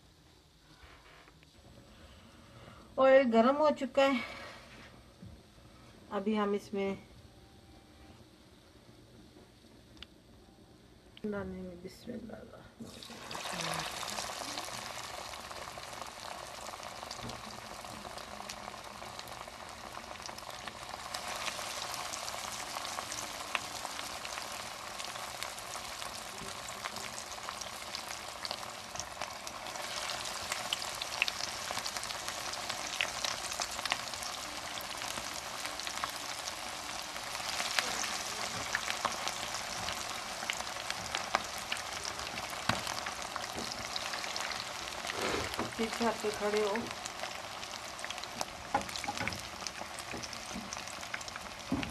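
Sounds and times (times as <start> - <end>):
chicken deep-frying in oil: 12.8 - 51.9.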